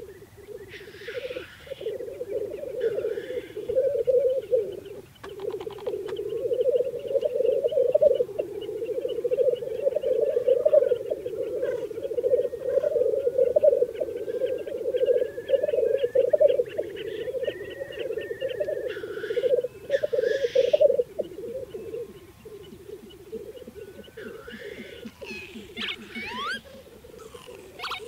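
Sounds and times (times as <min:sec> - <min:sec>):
grouse bubbling display song: 0:00.0 - 0:28.0
grouse hissing sneeze calls: 0:00.7 - 0:02.0, 0:02.8 - 0:03.6, 0:24.3 - 0:28.0.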